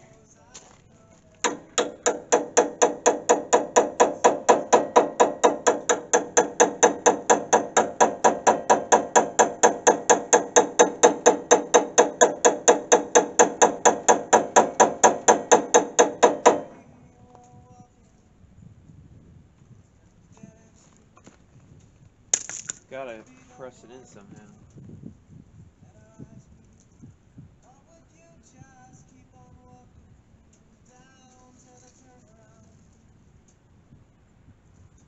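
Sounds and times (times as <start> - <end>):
hammer striking steel: 1.4 - 16.9.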